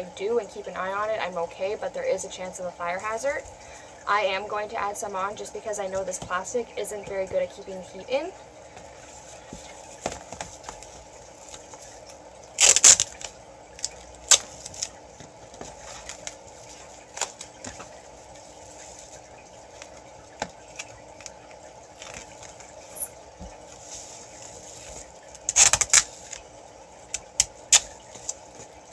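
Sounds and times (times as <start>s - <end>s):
foil insulation crinkling: 8.9s - 28.9s.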